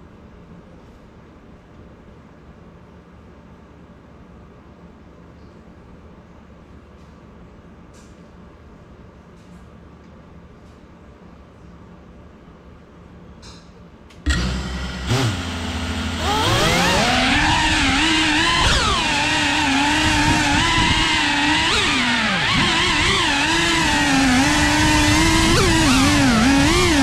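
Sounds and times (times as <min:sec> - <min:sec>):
quadcopter motors whining: 0:14.3 - 0:27.0.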